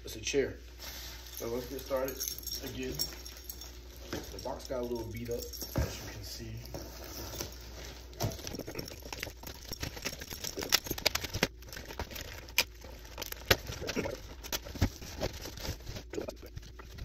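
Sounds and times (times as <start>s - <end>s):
keys jingling: 1.2s - 11.2s
cardboard flaps scraping and crackling: 6.7s - 17.0s
packing tape slit and pulled: 9.8s - 15.6s.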